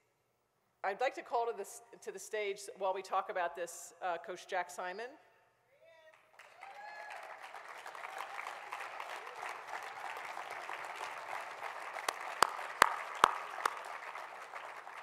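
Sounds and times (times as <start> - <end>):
audience applauding: 6.1 - 15.0.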